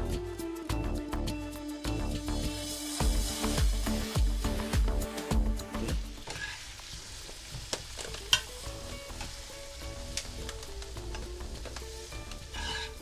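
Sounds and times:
vegetables sizzling in oil: 1.4s - 13.0s.

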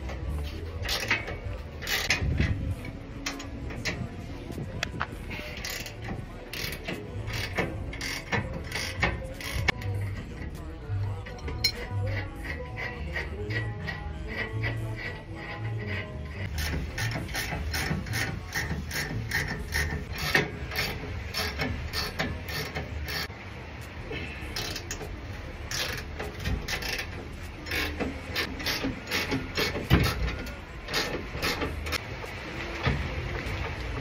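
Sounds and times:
ratchet wrench clicking: 0.8s - 2.5s, 4.8s - 23.3s, 24.5s - 32.0s.

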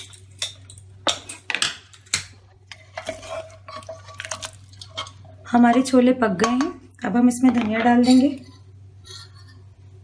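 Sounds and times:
ladle stirring thick curry: 2.7s - 5.9s.

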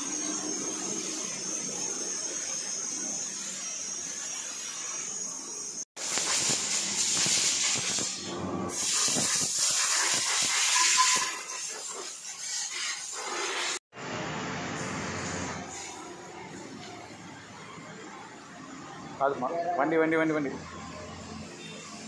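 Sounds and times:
compressed air hissing from air gun: 6.0s - 13.8s.

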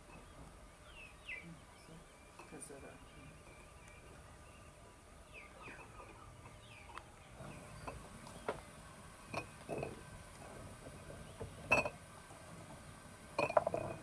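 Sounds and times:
glass jars clinking on wooden table: 11.7s - 12.0s, 13.4s - 14.0s.

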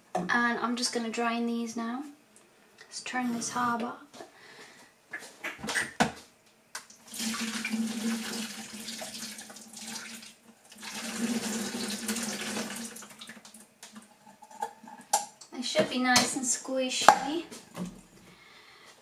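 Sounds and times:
water pouring into a sink: 7.0s - 14.6s.

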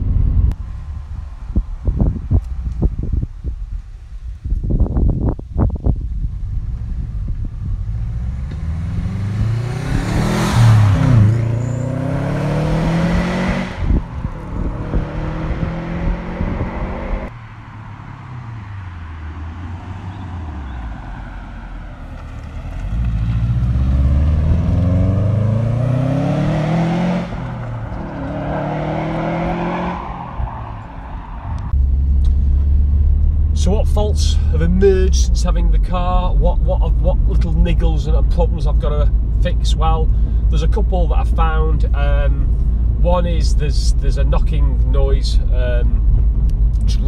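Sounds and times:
car accelerating past: 7.8s - 33.5s.

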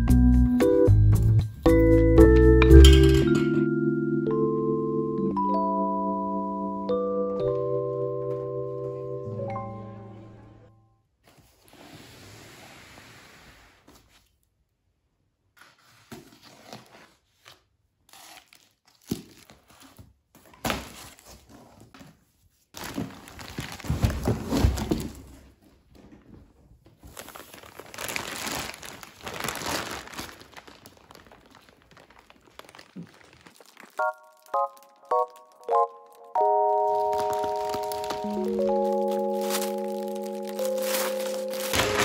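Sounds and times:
cardboard flaps and tape tearing: 15.6s - 21.9s, 27.0s - 35.5s, 37.0s - 42.0s
plastic wrapping crinkling: 22.7s - 25.2s, 26.8s - 42.0s.

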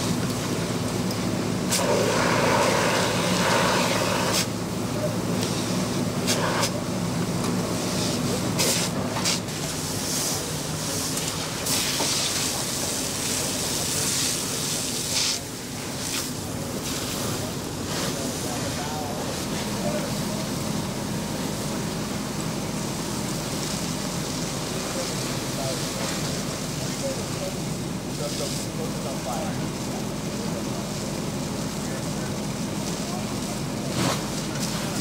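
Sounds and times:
hose stream hissing: 1.7s - 4.6s.

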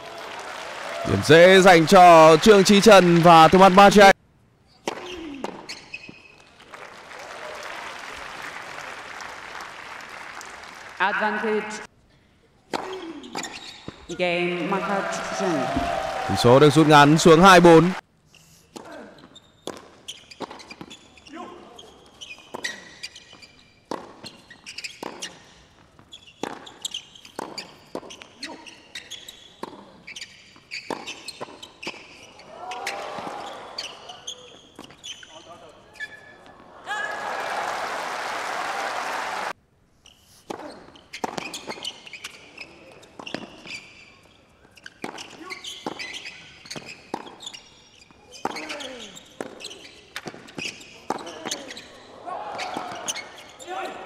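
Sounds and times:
crowd applauding: 0.0s - 4.1s, 6.6s - 11.8s, 14.7s - 18.0s, 36.8s - 39.5s
shoes squeaking on court: 4.7s - 6.5s, 12.7s - 14.2s, 17.4s - 36.7s, 40.0s - 54.0s
racket striking tennis ball: 4.8s - 5.7s
ball bouncing on court: 19.6s - 21.0s, 26.4s - 28.2s, 48.4s - 51.8s, 52.5s - 53.2s.

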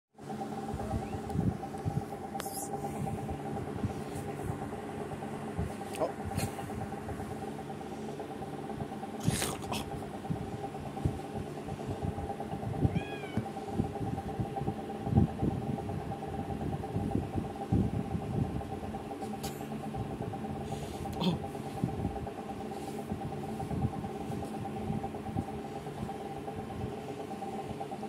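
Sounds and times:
steady hum: 0.2s - 28.0s
kitten meowing: 12.9s - 13.5s.

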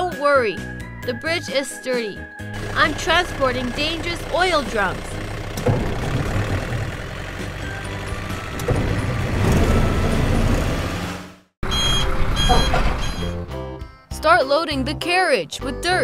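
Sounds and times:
toy truck engine sound: 2.6s - 8.6s.

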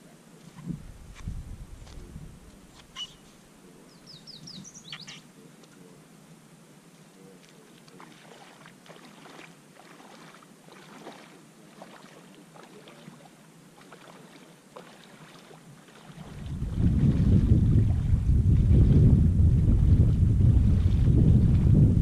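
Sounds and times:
soft steady hiss: 0.0s - 19.5s
feet splashing in shallow water: 7.4s - 19.1s, 19.8s - 21.8s.

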